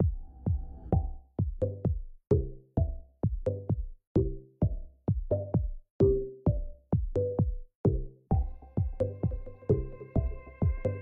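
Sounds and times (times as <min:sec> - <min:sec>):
electronic music with drum beat: 0:00.0 - 0:11.0.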